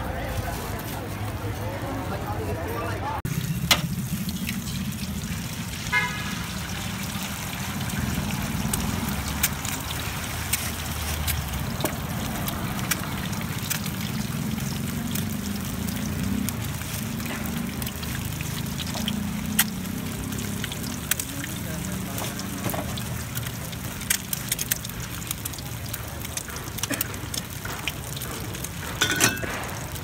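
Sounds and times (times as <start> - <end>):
low engine-like rumble: 3.1 - 19.3.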